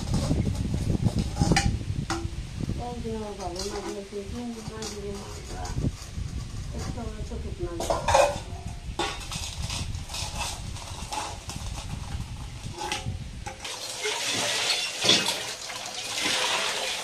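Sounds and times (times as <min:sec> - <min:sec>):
steel dishes clinking and scraping: 0:03.4 - 0:07.1, 0:07.8 - 0:17.0
water splashing over steel bowl: 0:12.6 - 0:17.0.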